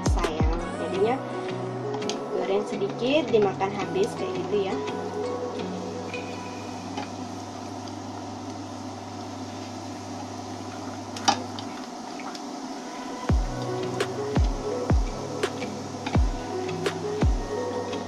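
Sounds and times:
low hum: 0.0s - 18.0s
crackers sizzling in oil: 4.0s - 18.0s.

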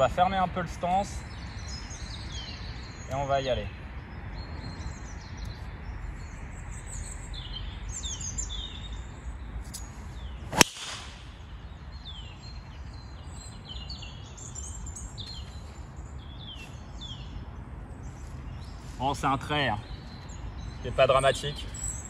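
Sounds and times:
birds chirping: 0.0s - 22.0s
golf club striking ball: 10.5s - 11.3s.

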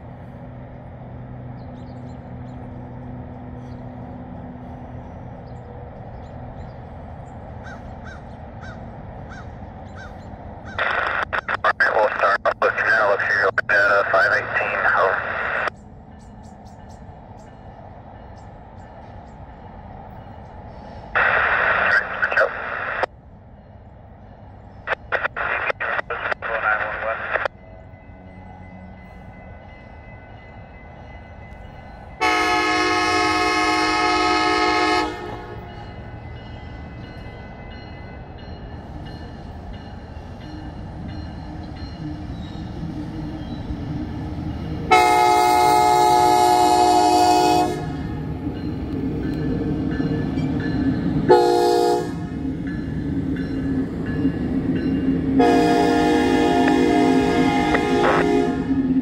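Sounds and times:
train rumble: 0.0s - 59.0s
train horn: 32.2s - 35.8s, 44.9s - 48.2s, 51.3s - 52.4s, 55.4s - 59.0s.

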